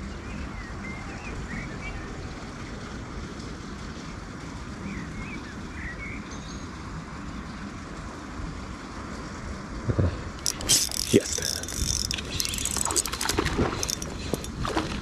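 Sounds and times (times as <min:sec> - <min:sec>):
short high wavering chirps: 0:10.4 - 0:14.5.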